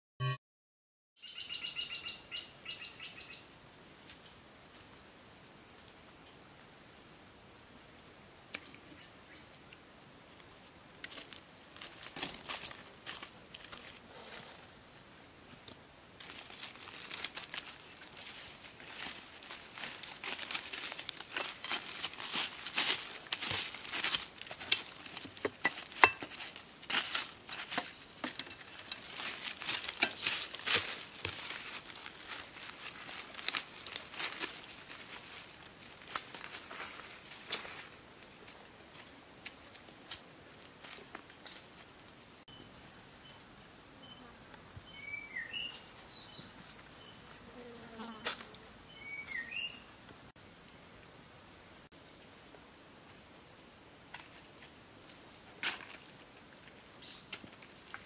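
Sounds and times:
bird singing chirps and whistles: 1.2 - 3.4, 44.8 - 46.4, 48.9 - 49.9
dry leaves rustling and crackling: 11.0 - 14.7, 16.2 - 41.9
twigs snapping: 36.1 - 36.9
insect buzzing: 47.1 - 48.9.

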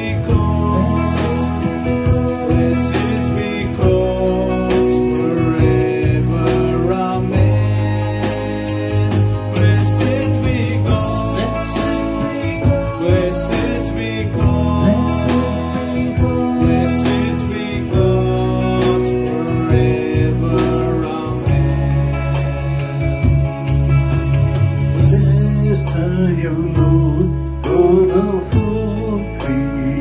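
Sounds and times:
hymn singing with accompaniment: 0.0 - 24.0, 24.7 - 30.0.

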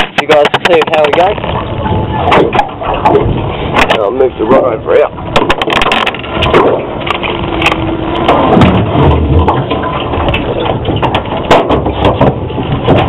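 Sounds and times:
knocks against metal boat: 8.3 - 13.0.

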